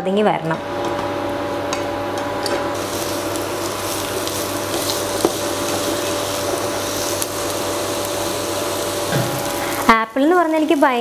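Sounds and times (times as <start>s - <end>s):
food sizzling in a pan: 2.8s - 11.0s.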